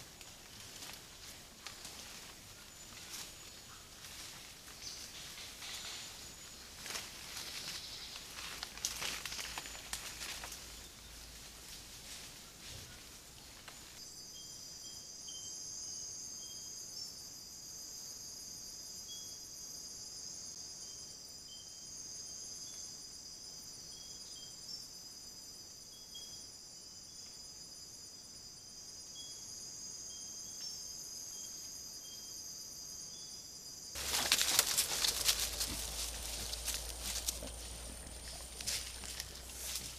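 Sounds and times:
scuffling and rustling: 0.0 - 10.8, 34.0 - 39.9
insect chirps: 0.0 - 39.9
insects trilling: 0.0 - 39.9.

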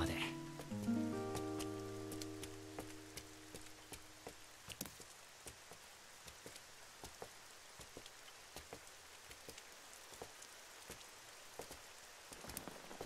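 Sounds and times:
faint steady rain: 0.0 - 13.0
drops dripping on hard surfaces: 0.4 - 5.8.

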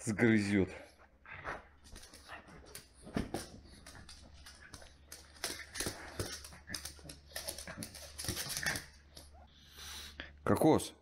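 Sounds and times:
claws clicking on floor: 1.8 - 9.4.

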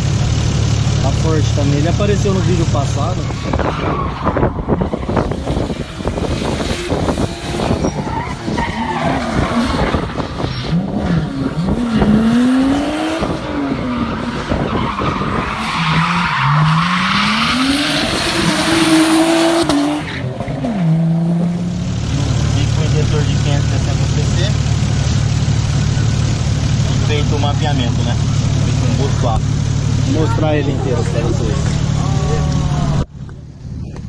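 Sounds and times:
car engine revving: 0.0 - 34.0
tyre squeal: 7.6 - 12.0.

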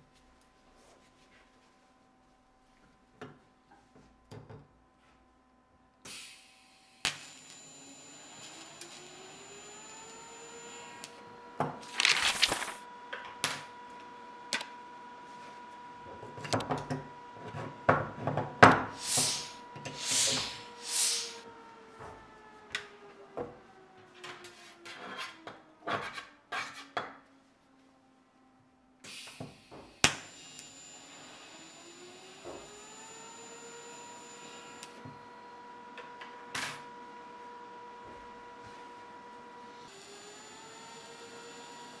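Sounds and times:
welder hum: 6.1 - 12.8, 18.8 - 21.4, 29.0 - 36.3, 39.7 - 42.0
short welding hisses: 19.0 - 21.4.

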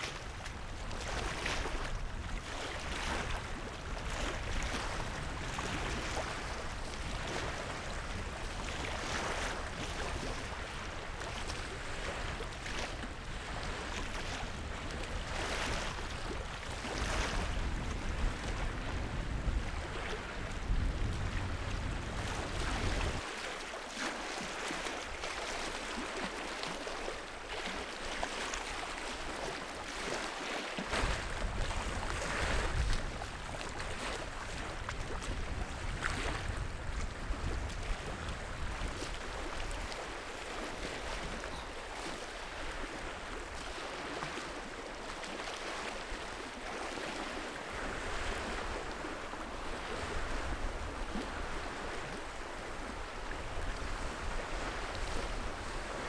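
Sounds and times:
waves lapping against rocks: 0.0 - 56.0
wind gusting on microphone: 13.2 - 23.3, 30.9 - 40.0.

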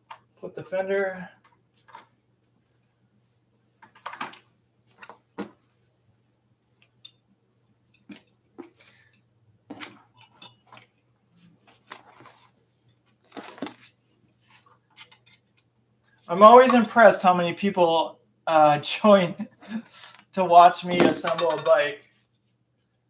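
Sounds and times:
metal and plastic parts clinking: 20.1 - 21.8.

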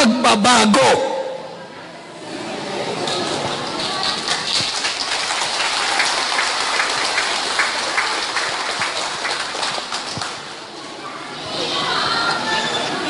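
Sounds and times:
audience clapping: 3.0 - 10.6.

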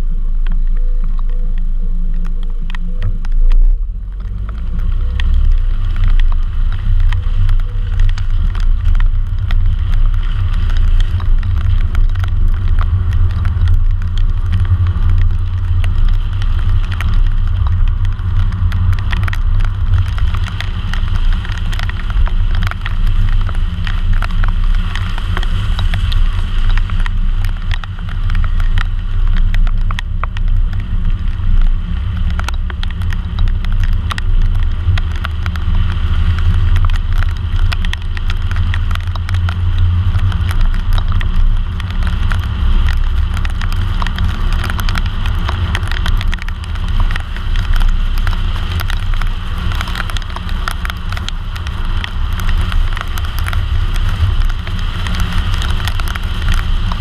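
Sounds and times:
water ticking on camera: 0.0 - 57.0
wind and road noise rumble: 0.0 - 57.0.

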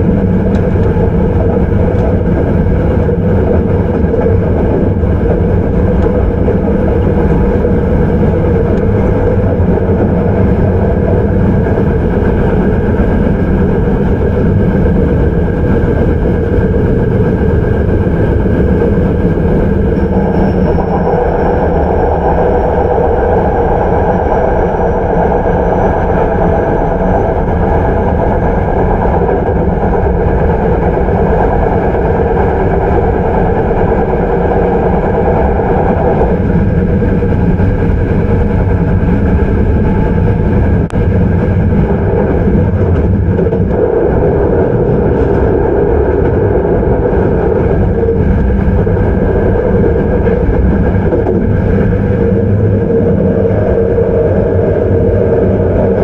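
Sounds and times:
train wheels and motors rumbling: 0.0 - 56.0
faint high whine rising: 16.4 - 28.2.

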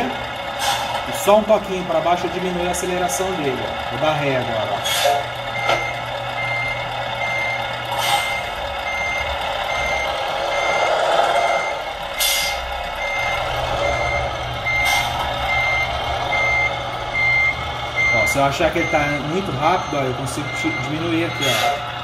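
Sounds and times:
simulated diesel engine: 0.0 - 22.0
reversing beeper: 1.2 - 22.0.

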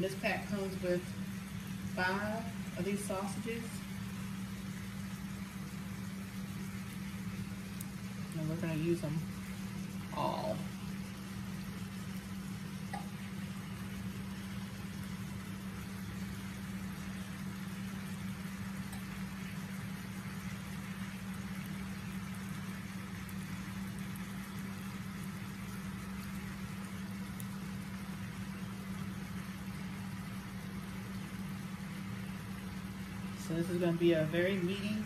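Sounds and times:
steady machine hum: 0.0 - 35.0.

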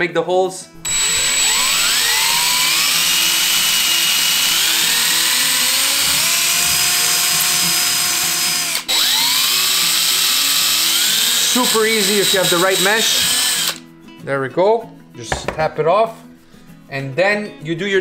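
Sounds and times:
cordless drill boring into bone: 0.8 - 13.8.

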